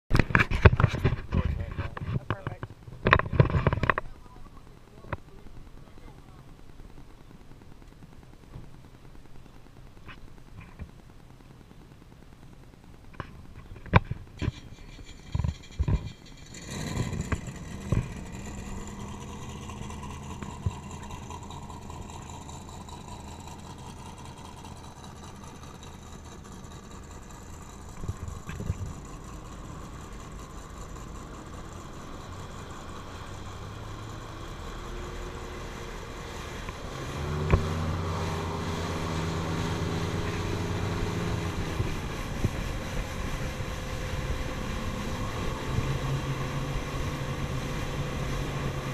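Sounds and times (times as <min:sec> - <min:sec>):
speedboat engine starting and running: 0:13.0 - 0:48.9
loud boat engine running close by: 0:14.4 - 0:48.9.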